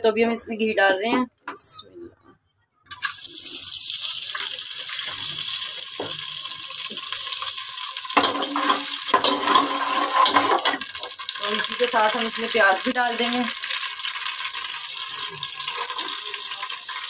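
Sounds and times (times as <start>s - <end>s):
ghee sizzling in a pot: 2.9s - 17.0s
metal spoon scraping a pot: 7.2s - 10.9s.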